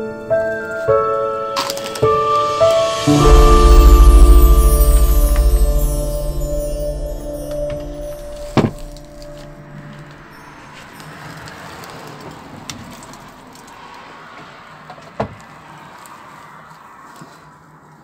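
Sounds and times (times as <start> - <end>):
background music: 0.0 - 10.8.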